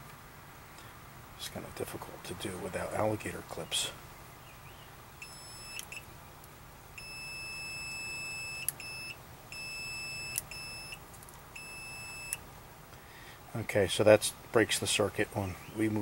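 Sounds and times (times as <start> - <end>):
high-pitched multimeter beeps: 5.2 - 6.1, 7.0 - 11.0, 11.6 - 12.4.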